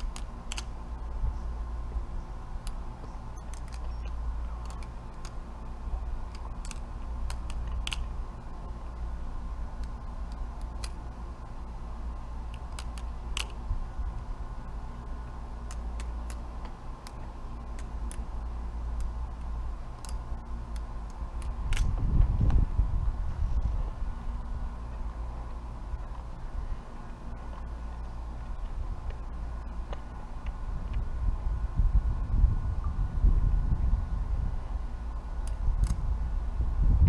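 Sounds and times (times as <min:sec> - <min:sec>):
steady low rumble: 0:00.0 - 0:37.0
butterfly knife clicking and clacking: 0:03.4 - 0:05.5, 0:06.3 - 0:08.2, 0:18.9 - 0:21.9.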